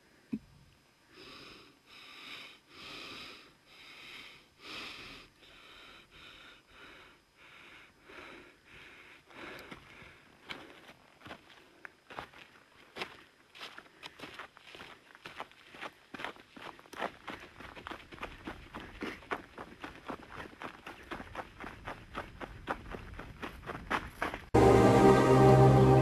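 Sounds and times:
man breathing heavily: 1.0 - 12.3, 15.6 - 22.4
footsteps on dirt path: 9.3 - 24.6.

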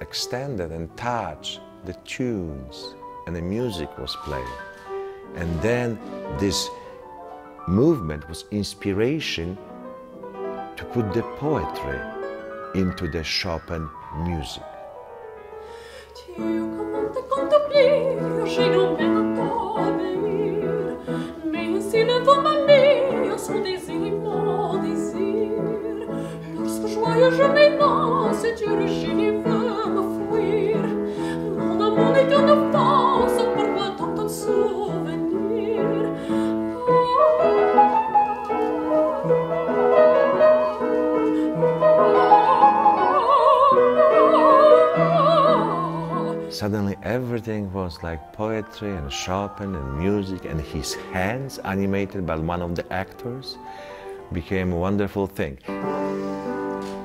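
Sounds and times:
piano accompaniment: 0.0 - 57.0
woman singing operatically: 16.1 - 46.5.

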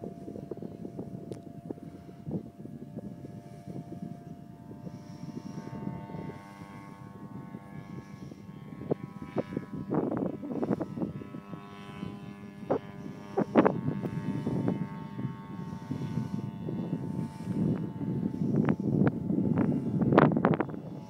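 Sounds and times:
distant propeller plane engine: 0.0 - 21.0
wind noise on microphone: 0.0 - 21.0.

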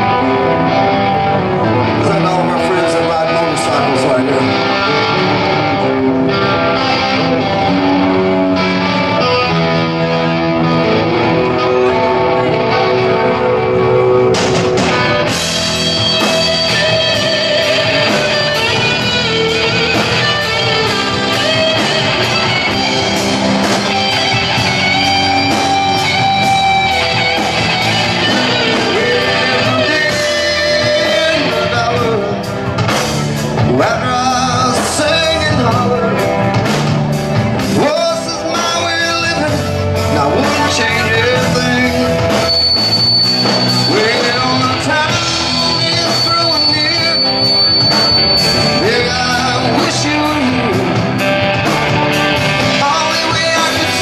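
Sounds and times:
electric guitar: 0.0 - 54.0
rock song with singing: 0.0 - 54.0
steady drum beat: 13.8 - 54.0.

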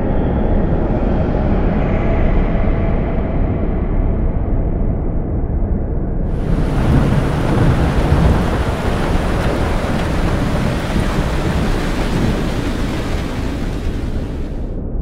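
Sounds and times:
low rumble of thunder: 6.3 - 14.6
heavy rain pouring: 6.3 - 14.7.

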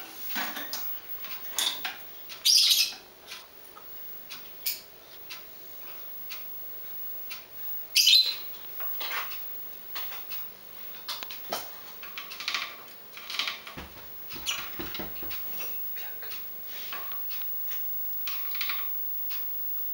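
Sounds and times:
lovebirds chirping: 2.4 - 3.0, 7.9 - 8.6.

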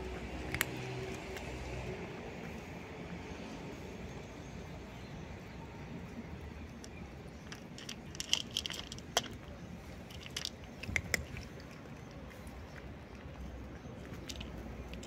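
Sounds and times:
cat chewing food: 0.0 - 1.8, 6.8 - 15.0.

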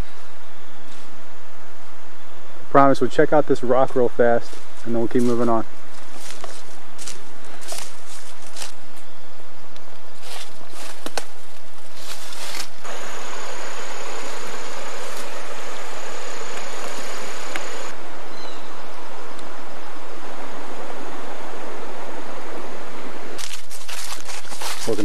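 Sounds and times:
footsteps crunching dry leaves: 4.2 - 9.3, 9.9 - 18.0, 23.4 - 25.0
thin high whine: 12.8 - 18.0
stream rushing: 12.8 - 18.3.

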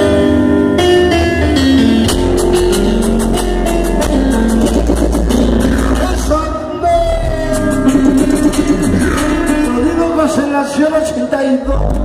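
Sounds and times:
loud dance music: 2.2 - 10.6.

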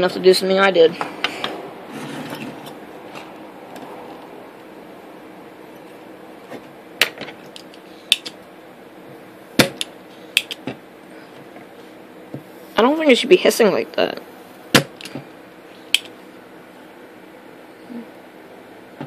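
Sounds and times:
desoldering pump snapping: 9.6 - 10.8, 15.9 - 16.2.

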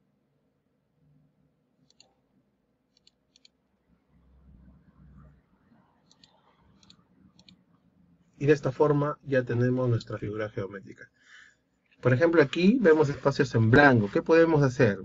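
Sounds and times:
computer mouse clicks: 1.8 - 2.2, 2.9 - 3.6, 6.0 - 7.6.

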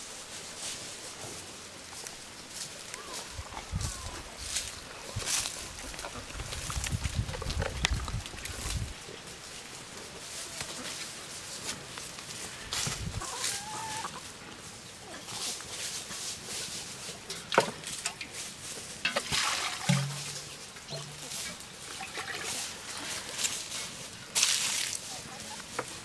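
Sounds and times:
chickens clucking: 2.9 - 19.2, 19.9 - 24.4, 25.0 - 26.0
water pouring from metal jug: 19.1 - 21.3, 21.9 - 23.1.

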